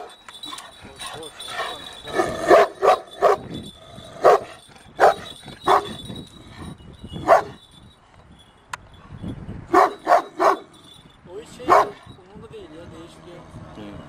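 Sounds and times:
dog barking: 2.2 - 3.4, 4.2 - 6.0, 7.3 - 7.6, 9.7 - 10.7, 11.7 - 12.0.

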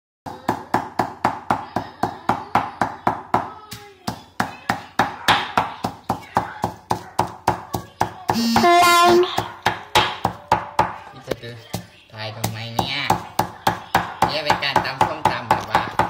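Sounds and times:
pestle pounding in stone mortar: 4.1 - 11.0, 11.7 - 16.0.

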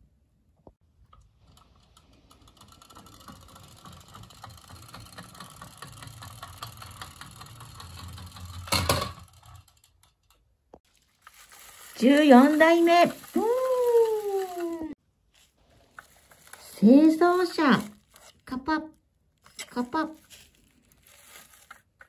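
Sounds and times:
toy car motor whirring: 11.6 - 15.0.

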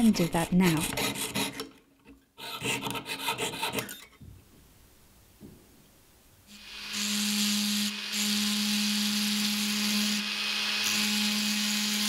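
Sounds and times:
rotary tool grinding metal: 2.4 - 4.2, 6.6 - 12.0.

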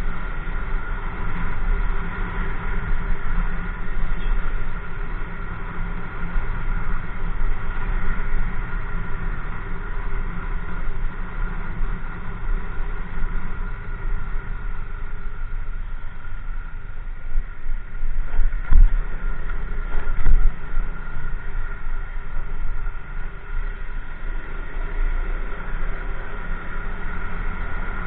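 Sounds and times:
wind rumble on microphone: 0.0 - 28.0.

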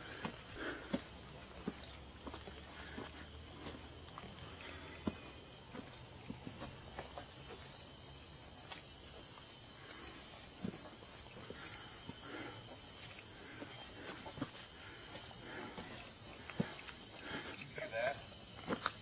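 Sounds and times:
soft footsteps on forest floor: 0.0 - 7.9, 8.5 - 19.0
crickets and insects chirping: 0.0 - 19.0.

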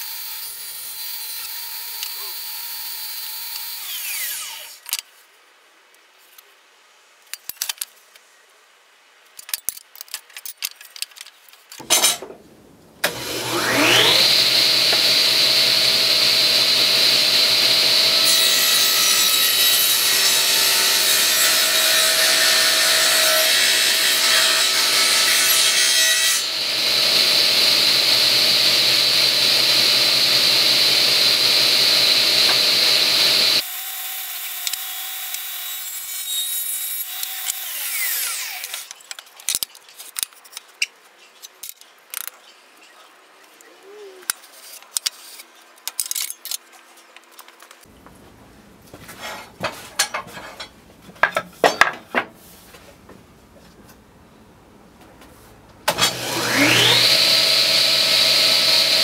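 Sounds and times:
saw cutting wood rasping: 13.0 - 38.9, 55.9 - 59.0
table saw blade whine: 13.0 - 38.9, 55.9 - 59.0.

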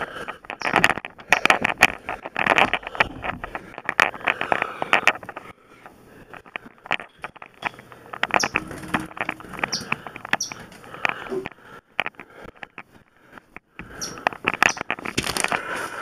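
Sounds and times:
objects knocking and scraping: 0.2 - 5.5, 6.3 - 12.9
short high squeaks: 8.3 - 10.7.

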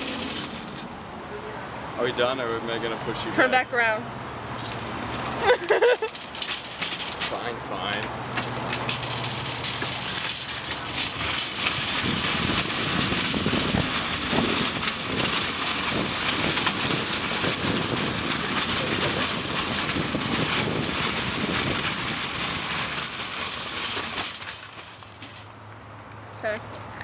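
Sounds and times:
shopping cart rattling: 0.0 - 0.9, 5.2 - 25.5.

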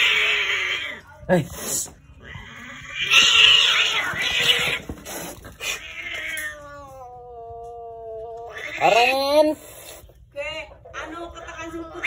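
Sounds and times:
cat yowling: 0.0 - 1.1, 2.2 - 4.8, 5.6 - 9.4
cats hissing and screeching: 0.0 - 10.3.

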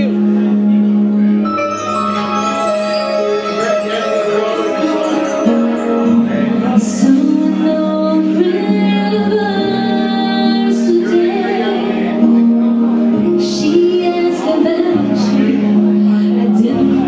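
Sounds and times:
woman singing: 6.8 - 12.2, 13.3 - 17.0.

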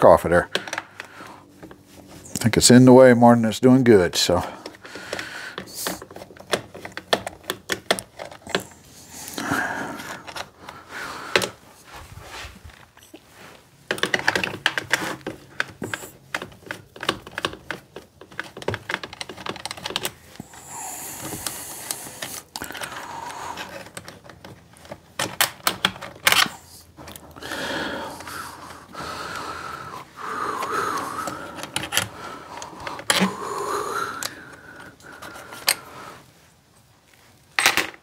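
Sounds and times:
hand tools clicking and tapping: 0.4 - 2.5, 4.3 - 11.6, 13.9 - 35.9
small parts clicking: 30.4 - 35.9.

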